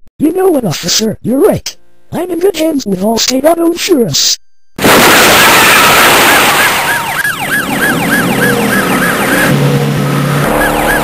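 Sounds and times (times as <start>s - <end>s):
car noise: 5.6s - 11.0s
police siren yelping: 6.2s - 11.0s.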